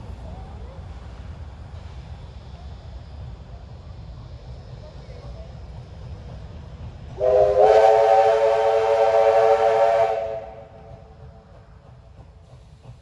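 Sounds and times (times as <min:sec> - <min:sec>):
steam locomotive whistle chord: 0:07.2 - 0:11.0.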